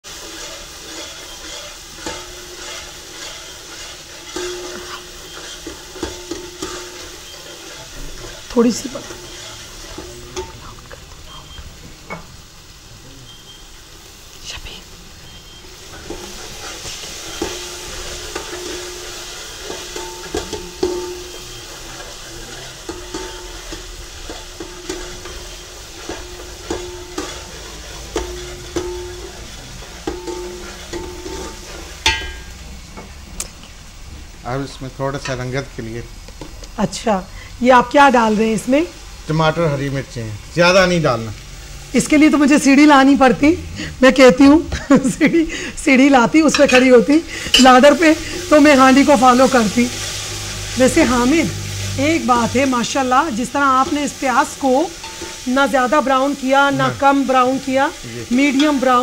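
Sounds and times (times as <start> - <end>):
onions sizzling in oil: 0.0 - 59.0
metal ladle scraping pot: 0.1 - 10.6, 15.3 - 21.8, 22.8 - 32.5, 53.8 - 55.5
metal ladle clanking on pot: 4.3 - 7.0, 26.0 - 27.4, 28.1 - 29.2, 30.0 - 32.5, 46.5 - 47.8.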